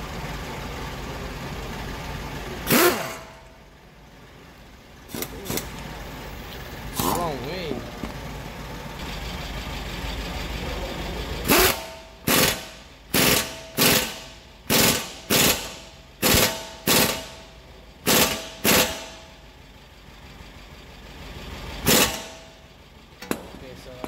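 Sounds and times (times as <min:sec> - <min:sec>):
pneumatic impact wrench bursts: 0:02.6 - 0:03.4, 0:05.1 - 0:05.8, 0:06.9 - 0:07.3, 0:11.4 - 0:19.2, 0:21.8 - 0:22.6.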